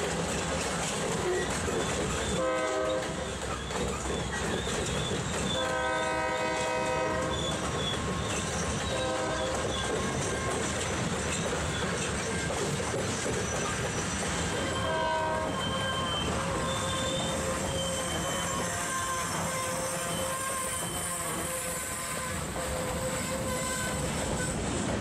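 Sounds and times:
freight train rumbling: 0:00.0 - 0:25.0
locomotive air horn blasts: 0:02.4 - 0:03.2, 0:05.6 - 0:07.4, 0:08.9 - 0:09.7, 0:14.8 - 0:24.0.

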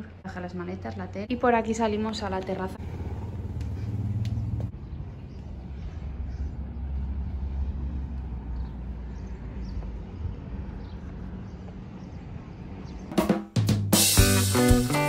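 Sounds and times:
music: 0:13.1 - 0:15.0.

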